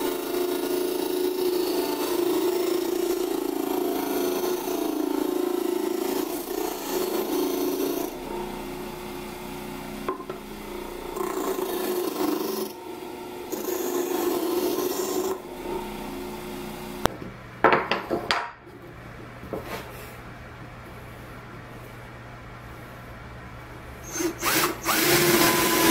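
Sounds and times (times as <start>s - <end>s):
disc sander sanding plywood: 0.0s - 17.2s.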